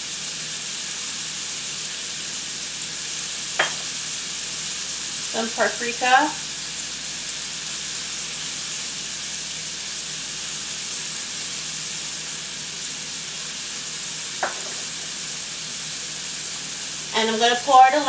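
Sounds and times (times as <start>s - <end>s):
shrimp sizzling in a pan: 0.0s - 18.0s.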